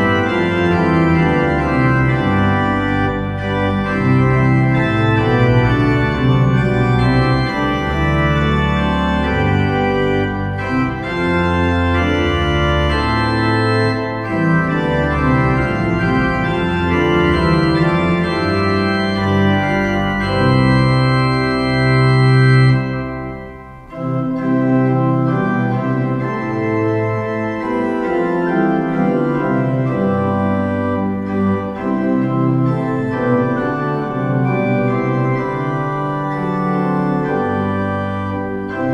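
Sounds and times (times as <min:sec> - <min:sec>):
organ playing chords: 0:00.0 - 0:38.9.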